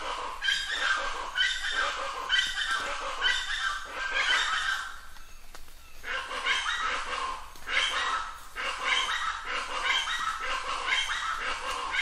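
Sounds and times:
bird harsh rhythmic calls: 0.0s - 12.0s.

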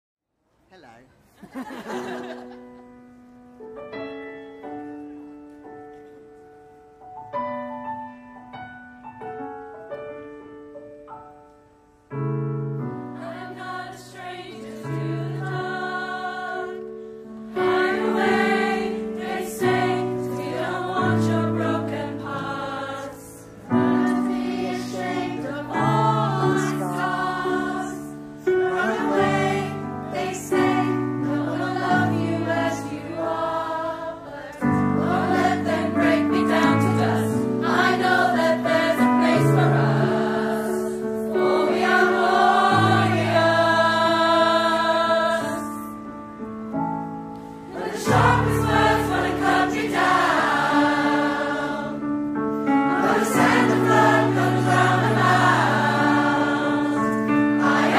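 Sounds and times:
mixed choir singing in harmony: 13.0s - 46.1s, 47.5s - 57.9s.

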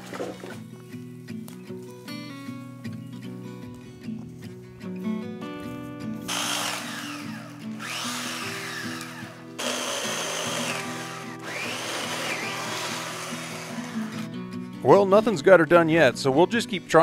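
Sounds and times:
background music: 0.0s - 17.0s
chainsaw running: 6.2s - 14.4s.

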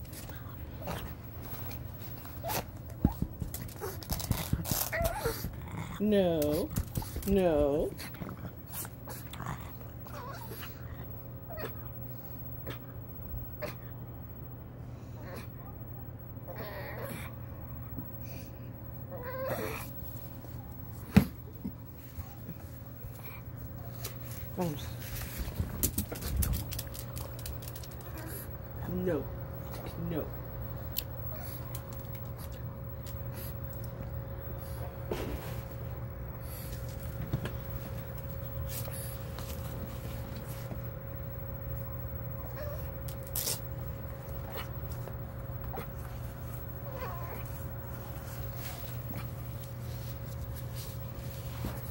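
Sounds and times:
faint constant tone: 0.0s - 51.9s
steady low hum: 0.0s - 51.9s
dog whining: 3.8s - 5.8s, 10.0s - 11.9s, 16.5s - 17.3s, 19.1s - 20.0s, 42.3s - 43.7s, 45.6s - 49.2s.

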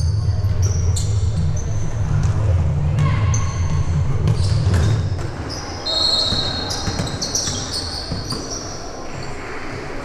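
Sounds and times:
sneakers squeaking on court floor: 4.2s - 10.0s
basketball bouncing: 6.3s - 8.6s.

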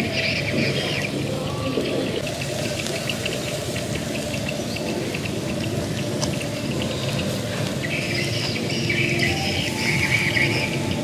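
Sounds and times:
snails sizzling on a grill: 2.2s - 11.0s.

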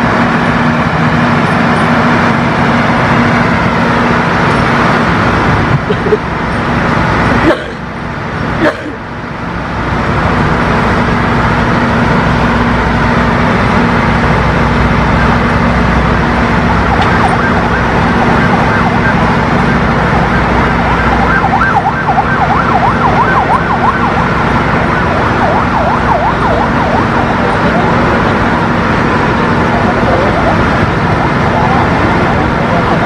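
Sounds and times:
machine engine running: 0.0s - 33.0s
high wavering siren tone: 16.6s - 28.3s.

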